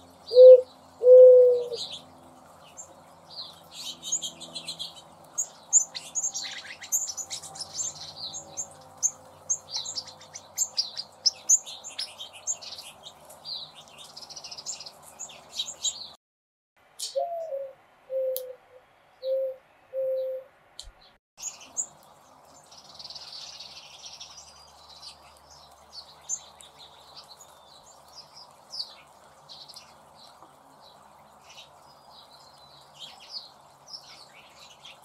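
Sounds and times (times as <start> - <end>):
small birds chirping: 0.0 - 16.2, 19.2 - 35.0
dove cooing: 0.3 - 1.8, 17.2 - 18.6, 19.2 - 20.5.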